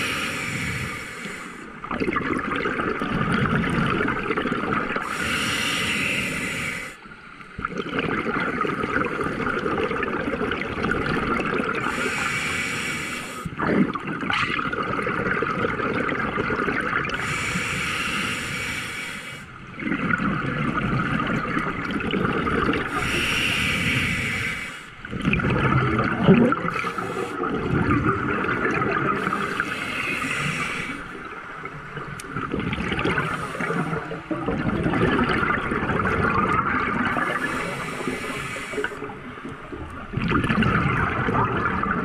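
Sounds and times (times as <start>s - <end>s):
hissing regulator inhale: 0.0s - 1.8s, 5.0s - 7.1s, 11.8s - 13.5s, 17.2s - 19.5s, 22.9s - 25.0s, 26.7s - 27.5s, 29.2s - 31.2s, 33.1s - 34.2s, 37.1s - 39.1s
gurgling exhaled bubbles: 1.8s - 6.1s, 7.6s - 12.7s, 13.4s - 18.3s, 19.7s - 24.3s, 25.0s - 42.0s.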